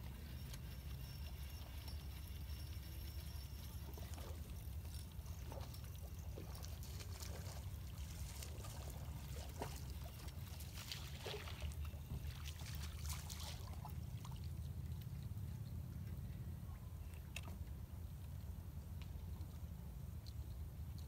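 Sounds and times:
small splashes: 0:06.4 - 0:14.6.

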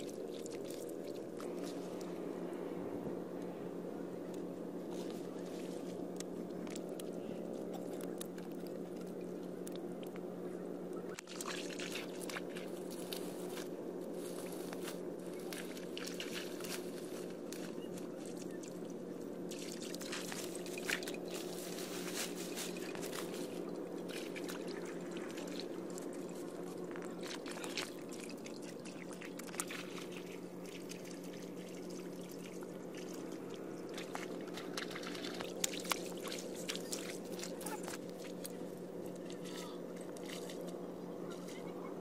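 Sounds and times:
water trickling through tubes: 0:22.8 - 0:42.0.

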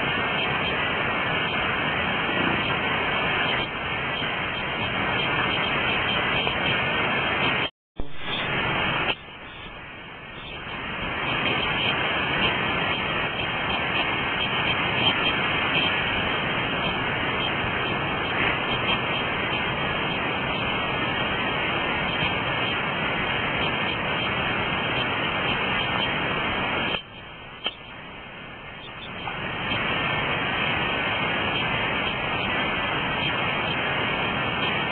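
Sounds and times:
flowing river water: 0:00.0 - 0:34.9.

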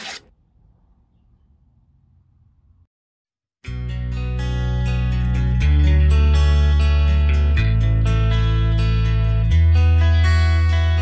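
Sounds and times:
background guitar music: 0:03.6 - 0:11.0.

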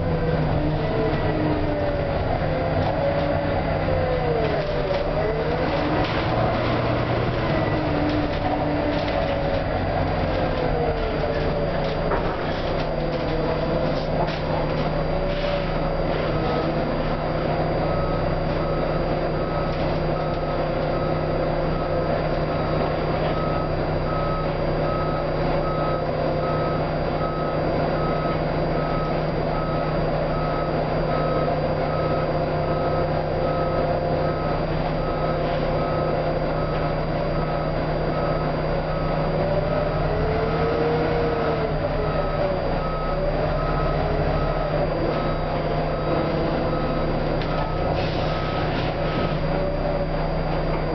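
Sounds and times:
bus engine drone with whine: 0:00.0 - 0:50.9
short electronic beeps: 0:15.4 - 0:40.2.

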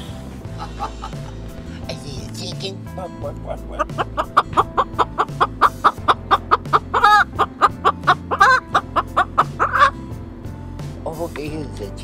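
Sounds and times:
background music: 0:00.0 - 0:12.0
crow clucking like a chicken: 0:03.6 - 0:10.0.

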